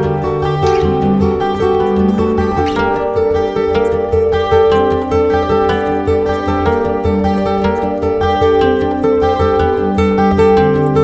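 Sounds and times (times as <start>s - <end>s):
plucked string tune with beat: 0.0s - 11.0s.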